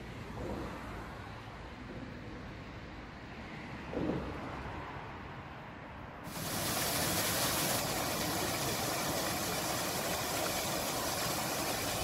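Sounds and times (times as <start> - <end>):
outdoor background rumble: 0.0 - 12.0
bright even hiss: 6.3 - 12.0.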